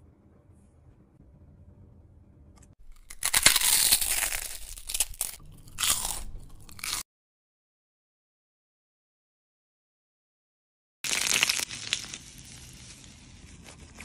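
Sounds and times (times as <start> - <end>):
crunchy chewing: 2.8 - 7.0.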